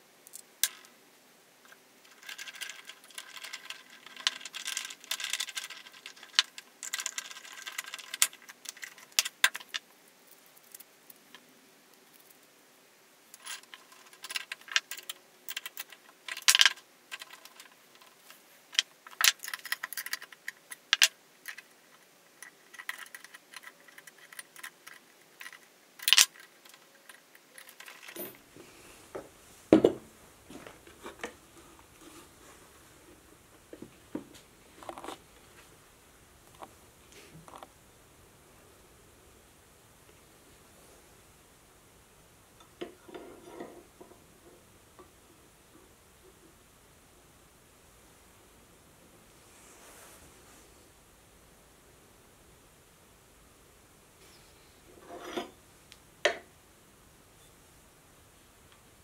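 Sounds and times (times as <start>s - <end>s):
metal tools clinking on workbench: 27.5s - 28.4s.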